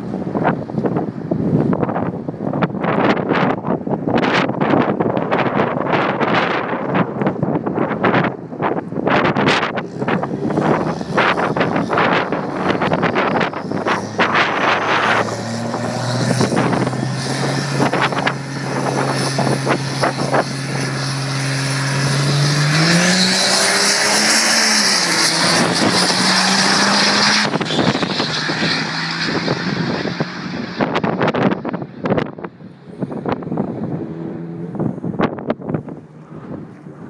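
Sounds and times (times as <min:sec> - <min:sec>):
wind buffeting microphone: 0:00.0 - 0:37.0
diesel truck engine revving: 0:09.0 - 0:37.0.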